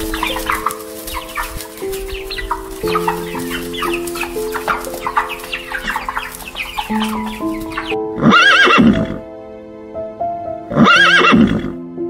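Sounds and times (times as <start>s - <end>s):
chicks peeping: 0.0s - 8.0s
background music held notes: 0.0s - 12.0s
horse neighing: 8.2s - 9.2s, 10.7s - 11.8s.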